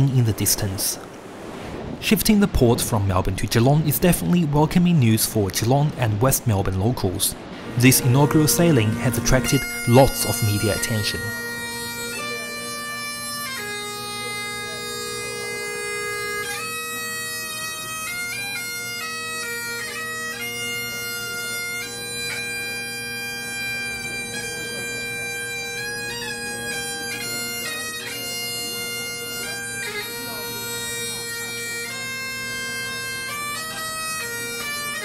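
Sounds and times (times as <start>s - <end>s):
bagpipes playing: 7.4s - 35.0s.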